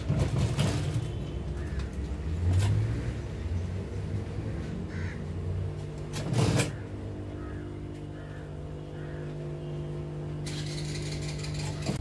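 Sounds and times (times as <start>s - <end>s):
sewing machine motor humming: 10.4s - 12.0s
sewing machine stitching rattle: 10.4s - 12.0s.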